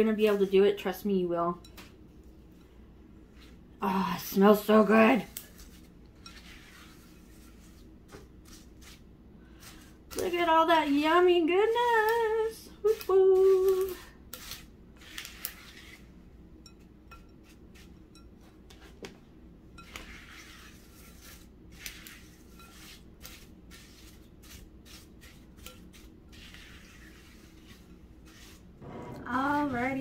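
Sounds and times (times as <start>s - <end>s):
spatula scraping glass bowl: 4.4s - 9.0s, 14.3s - 18.9s, 19.7s - 30.0s.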